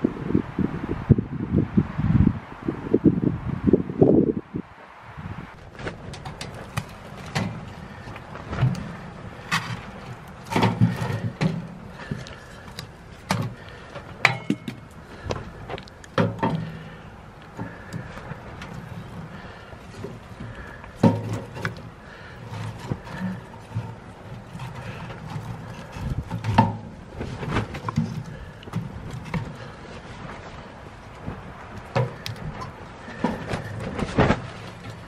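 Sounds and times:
fire crackling: 0:04.8 - 0:26.4
logs knocking against metal firebox: 0:05.8 - 0:15.5, 0:16.1 - 0:17.0, 0:17.6 - 0:29.7.

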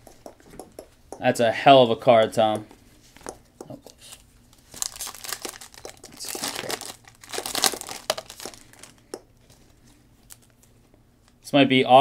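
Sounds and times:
plastic wrapper tearing and crinkling: 0:04.1 - 0:09.0, 0:10.2 - 0:10.6.

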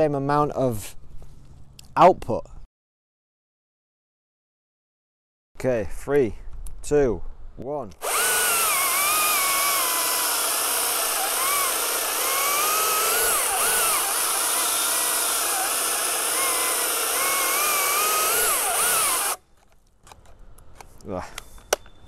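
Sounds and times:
electric chainsaw cutting log: 0:08.0 - 0:19.4.

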